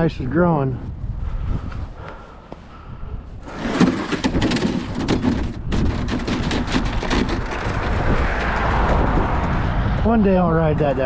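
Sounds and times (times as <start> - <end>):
sled scraping down snow: 3.4 - 9.5.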